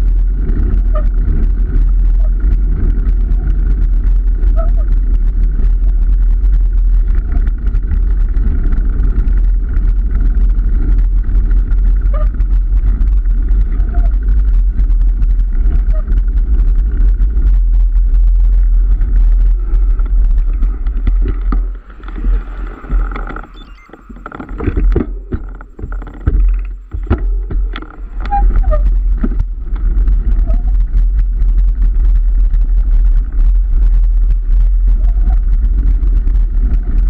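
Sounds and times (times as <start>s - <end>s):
road noise: 0.0s - 37.0s
wind buffeting microphone: 0.0s - 37.0s
clicks and knocks: 20.0s - 29.9s.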